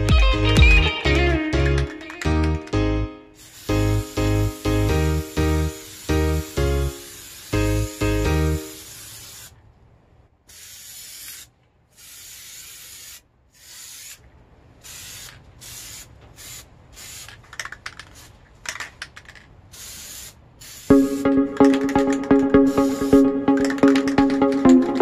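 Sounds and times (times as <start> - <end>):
aerosol can spraying: 3.4 - 9.5, 10.5 - 14.2, 14.8 - 17.4, 19.7 - 21.2, 22.6 - 23.3.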